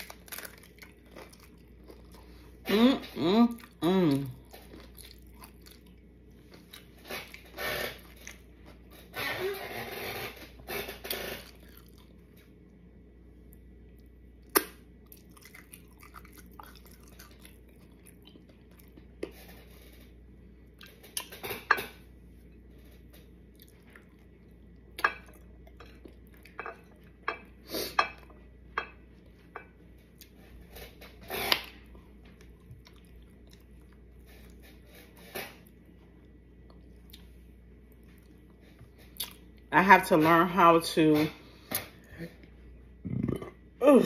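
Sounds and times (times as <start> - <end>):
person chewing crunchy food: 0.0 - 2.6, 3.5 - 8.9, 10.6 - 12.4, 13.5 - 21.4, 22.9 - 27.2, 30.1 - 39.6.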